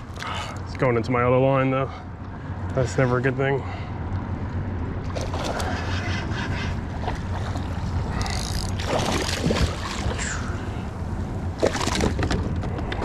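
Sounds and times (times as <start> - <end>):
wind rumble on microphone: 4.4 - 13.0
fish splashing at water surface: 7.2 - 10.5.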